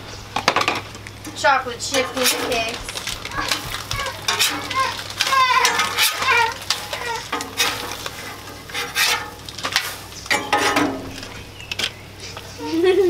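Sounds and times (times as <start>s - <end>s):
frying sizzle: 0.0s - 11.6s
metal spatula scraping griddle: 1.3s - 11.3s.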